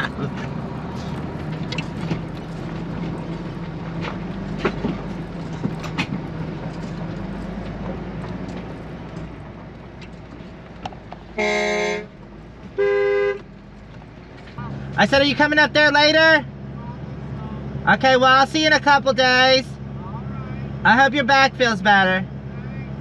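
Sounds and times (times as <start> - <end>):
engine and road hum: 0.0 - 23.0
vehicle horn honks: 11.4 - 12.1, 12.8 - 13.4.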